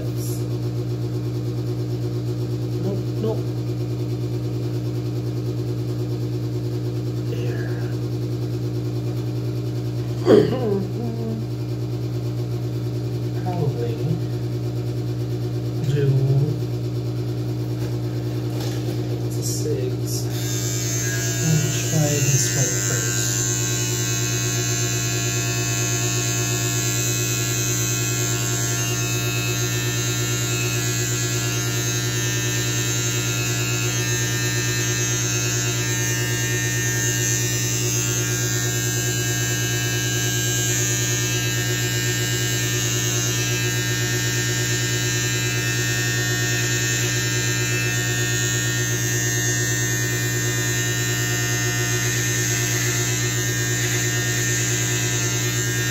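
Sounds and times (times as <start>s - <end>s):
electric beard trimmer buzzing: 0.0s - 1.6s, 7.1s - 8.3s, 10.0s - 11.6s, 13.4s - 14.5s, 17.6s - 55.9s.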